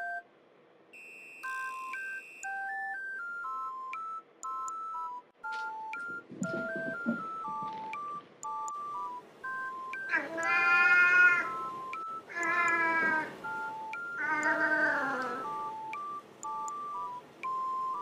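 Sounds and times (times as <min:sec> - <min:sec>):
beeping music: 0:01.0 - 0:18.0
cat meowing loudly: 0:10.1 - 0:11.6, 0:12.3 - 0:13.3, 0:14.2 - 0:15.5.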